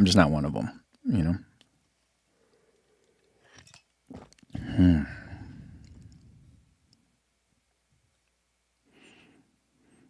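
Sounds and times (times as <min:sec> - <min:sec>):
man drinking and swallowing: 0:02.5 - 0:06.7
man breathy ahh: 0:04.5 - 0:06.0.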